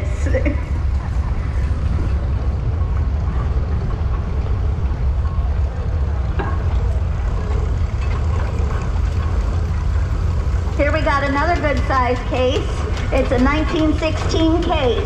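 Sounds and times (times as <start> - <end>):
steam traction engine rumbling: 0.0 - 15.0.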